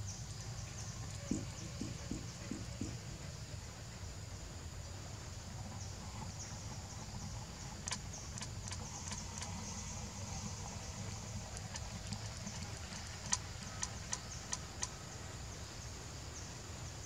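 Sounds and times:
low background rumble: 0:00.0 - 0:16.2
insects droning: 0:00.0 - 0:17.0
sharp clicks: 0:07.8 - 0:15.0.

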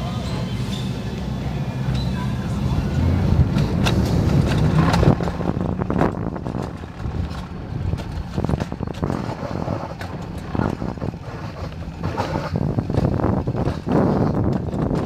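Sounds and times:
sled wheels rumbling on rails: 0:01.9 - 0:15.0
wind buffeting microphone: 0:02.4 - 0:15.0
clicks and clatters: 0:03.5 - 0:15.0.

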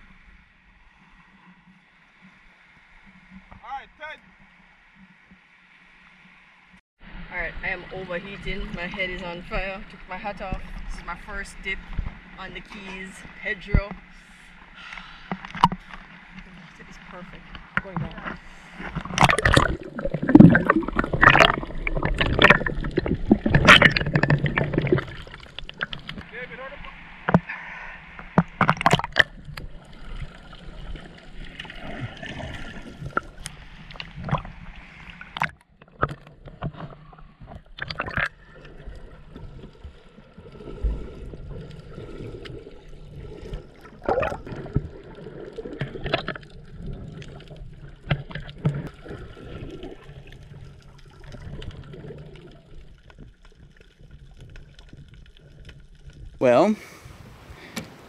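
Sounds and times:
underwater gurgling with bubbles: 0:13.3 - 0:56.4
underwater clicks and knocks: 0:14.8 - 0:26.3, 0:27.2 - 0:27.5, 0:28.2 - 0:29.8, 0:35.2 - 0:39.8, 0:43.4 - 0:49.9.

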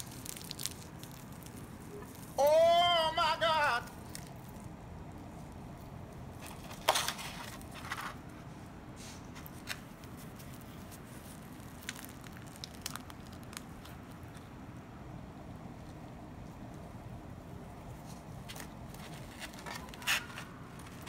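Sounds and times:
fried wrappers crackling: 0:00.0 - 0:08.2, 0:09.4 - 0:14.6.

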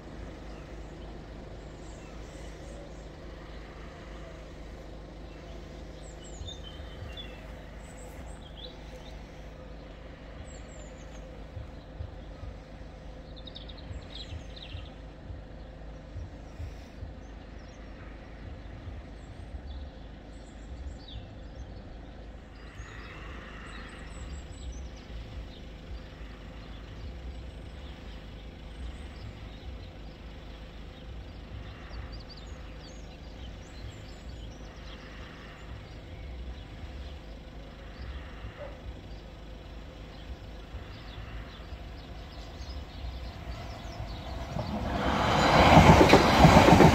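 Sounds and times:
faint bird chirps: 0:00.0 - 0:46.7
idling road vehicles rumble: 0:00.0 - 0:46.9.

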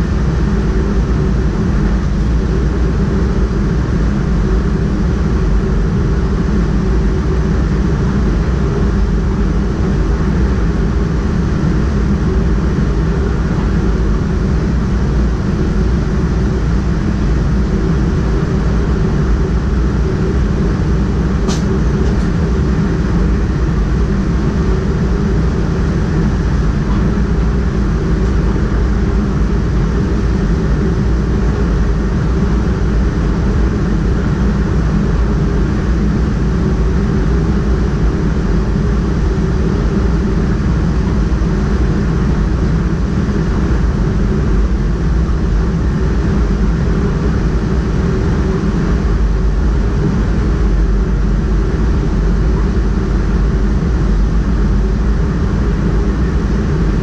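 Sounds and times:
train wheels rumbling on rails: 0:19.3 - 0:37.4.

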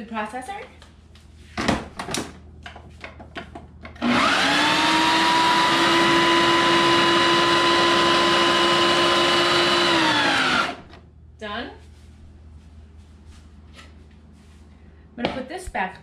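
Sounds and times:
food processor motor whining: 0:04.0 - 0:11.0.

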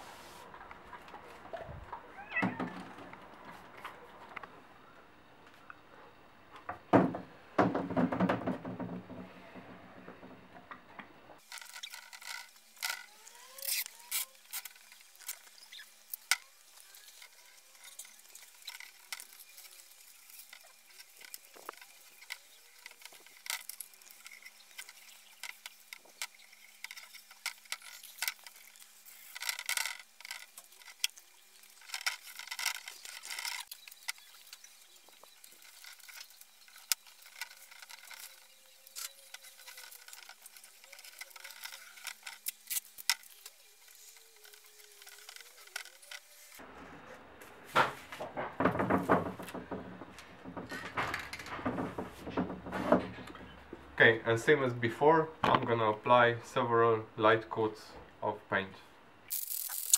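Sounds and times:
masking paper and tape crackling: 0:11.4 - 0:46.7.

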